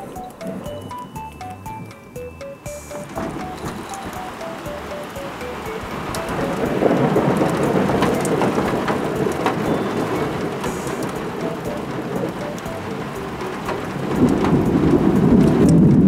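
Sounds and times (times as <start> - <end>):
raindrops ticking: 0.0 - 16.0
heavy rain on concrete: 2.8 - 16.0
low rumble of thunder: 6.6 - 12.4, 13.8 - 16.0.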